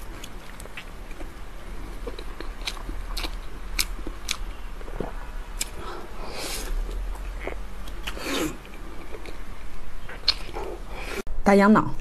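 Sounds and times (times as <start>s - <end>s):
wet biting and chewing: 2.0s - 9.4s.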